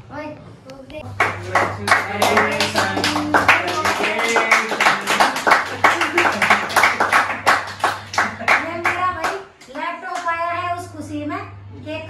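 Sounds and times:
voices: 0.7 - 12.0
group clapping in rhythm: 1.1 - 10.4.

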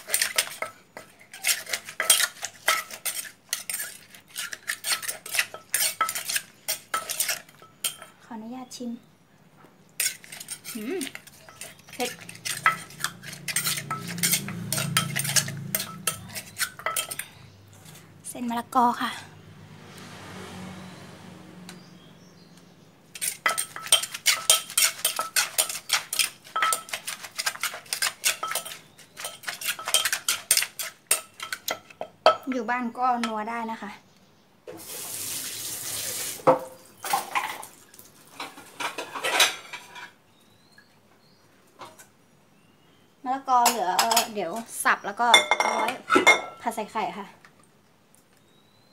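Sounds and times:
spoon clinking in a mortar: 0.0 - 8.2, 10.0 - 17.3, 23.2 - 32.5.

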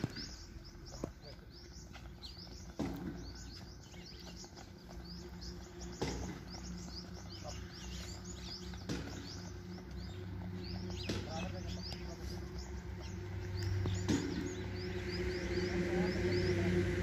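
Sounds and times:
small birds chirping: 0.0 - 17.0
sharp knocks: 8.8 - 9.4.

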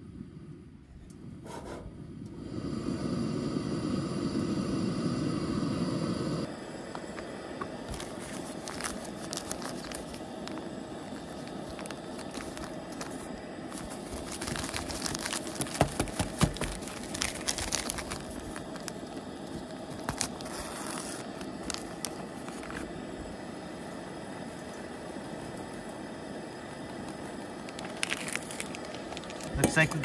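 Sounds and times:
camp stove burner hissing: 0.0 - 30.0
paper packet crinkling and tearing: 7.9 - 22.9, 27.0 - 30.0.

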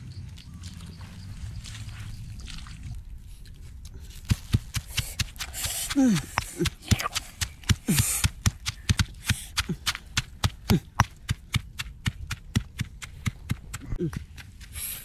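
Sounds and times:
pestle pounding in stone mortar: 4.2 - 14.7.

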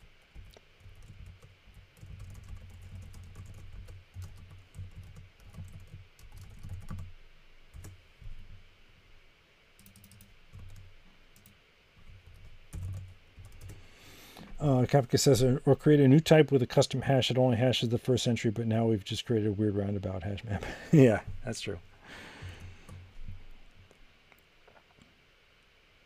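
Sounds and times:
typing on computer keyboard: 0.0 - 7.1, 7.7 - 8.0, 9.8 - 13.8.

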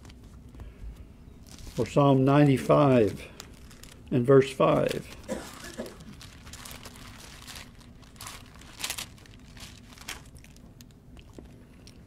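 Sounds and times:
thin paper pages rustling: 1.4 - 4.1, 6.0 - 10.6.

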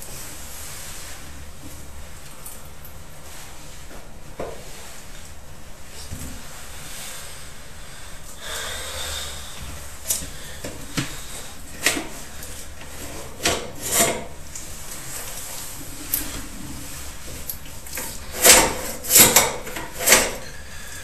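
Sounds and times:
camera scraping inside a pipe: 11.0 - 20.6.

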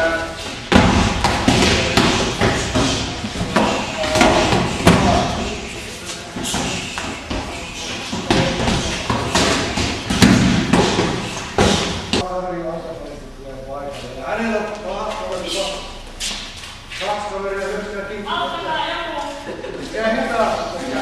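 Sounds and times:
punches and kicks on pads: 0.7 - 5.6, 6.4 - 12.2.

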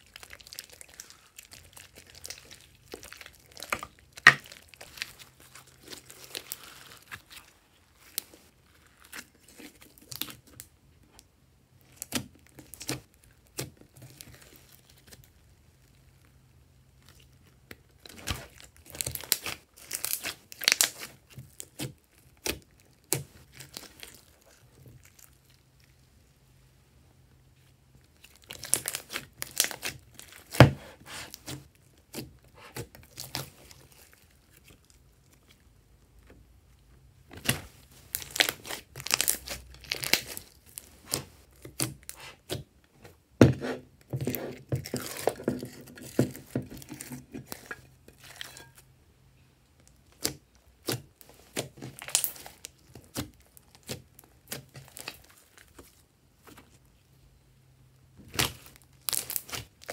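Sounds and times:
slime crackling and popping: 0.0 - 10.7, 17.0 - 26.0, 28.1 - 35.5, 37.4 - 42.8, 49.8 - 56.6, 58.2 - 59.9.

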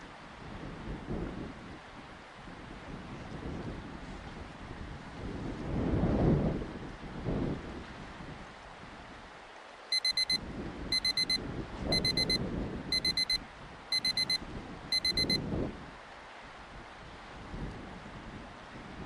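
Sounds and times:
gusty wind on microphone: 0.0 - 9.3, 10.4 - 19.0
timer alarm short high beeps: 9.9 - 15.4.

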